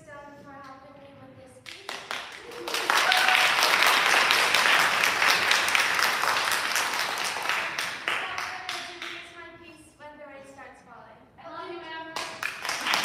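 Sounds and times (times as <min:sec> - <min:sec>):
audience applauding: 0:01.9 - 0:08.8, 0:12.4 - 0:13.0.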